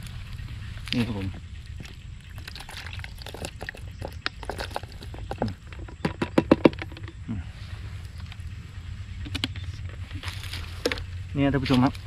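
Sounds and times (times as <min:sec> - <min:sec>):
water pouring from bottle: 0:02.4 - 0:05.5.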